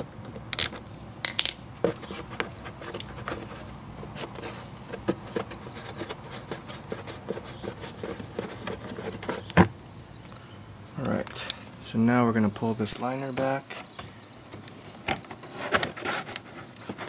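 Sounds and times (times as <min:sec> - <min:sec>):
fingers rubbing plastic: 0:01.8 - 0:09.6.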